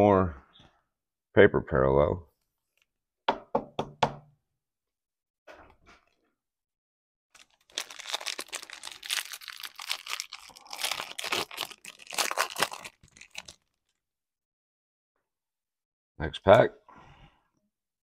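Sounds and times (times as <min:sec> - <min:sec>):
foil wrapper tearing and crinkling: 0:07.4 - 0:14.0.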